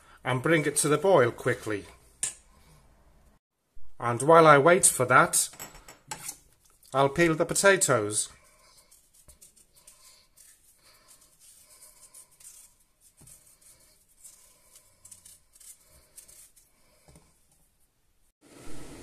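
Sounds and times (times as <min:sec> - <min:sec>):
knife scraping potato skin: 0:06.1 - 0:06.6, 0:08.4 - 0:17.2.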